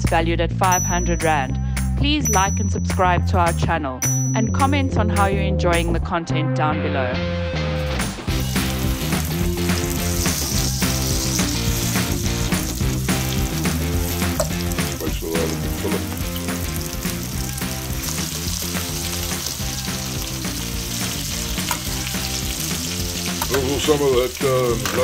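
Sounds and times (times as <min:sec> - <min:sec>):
fish frying in oil sizzling: 0:08.3 - 0:25.0.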